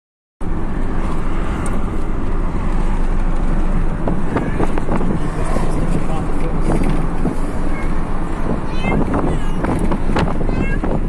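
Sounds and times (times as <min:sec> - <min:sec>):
car road and engine rumble: 0:00.4 - 0:11.0.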